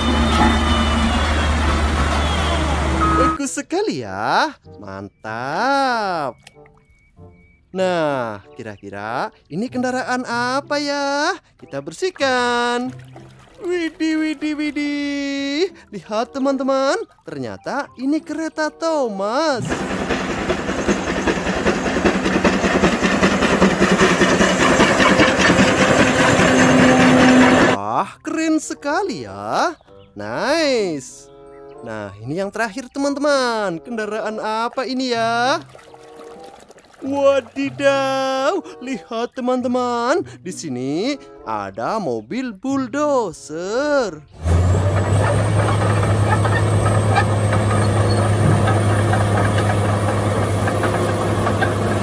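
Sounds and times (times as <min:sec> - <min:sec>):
bulldozer diesel engine running: 0:00.0 - 0:03.4, 0:19.6 - 0:27.8, 0:44.4 - 0:52.0
steam locomotive chuffing: 0:00.0 - 0:03.4, 0:19.6 - 0:27.8, 0:44.4 - 0:52.0
low mechanical drone: 0:19.6 - 0:27.8, 0:44.4 - 0:52.0.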